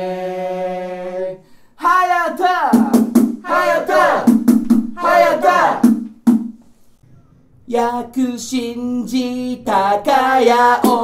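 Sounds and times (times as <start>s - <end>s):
sharp beats: 2.7s - 6.6s
crowd chanting: 3.4s - 4.3s, 5.0s - 5.9s.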